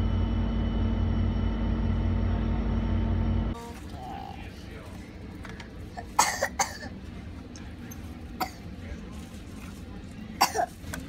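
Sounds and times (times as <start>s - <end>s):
steady low hum: 0.0s - 11.0s
child coughing: 6.0s - 7.0s, 8.4s - 8.7s, 10.4s - 10.8s.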